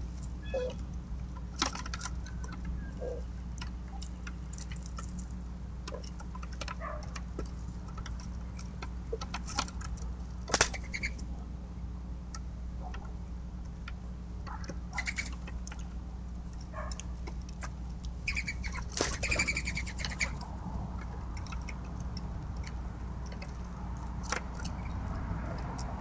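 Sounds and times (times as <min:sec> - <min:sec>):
steady low hum: 0:00.0 - 0:26.0
dove wings whistling and fluttering: 0:18.3 - 0:20.4.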